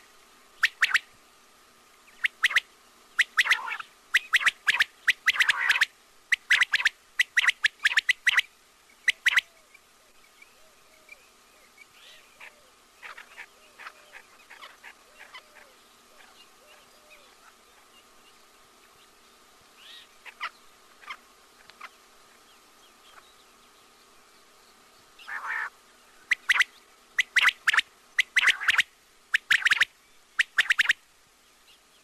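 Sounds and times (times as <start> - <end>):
faint steady hum: 0.0 - 32.0
quail calls: 0.6 - 1.1, 2.1 - 2.6, 3.2 - 9.7, 12.0 - 17.9, 19.8 - 22.0, 25.2 - 25.7, 26.3 - 31.0.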